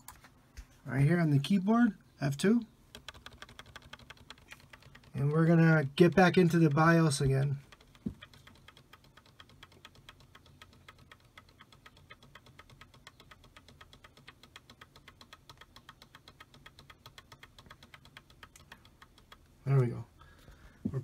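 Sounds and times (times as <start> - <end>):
keyboard key tapping: 2.9 - 19.6.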